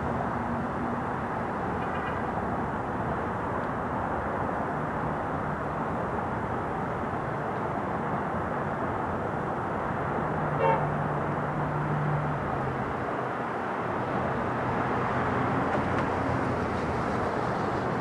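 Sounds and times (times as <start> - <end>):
car horn toot: 10.6 - 10.9.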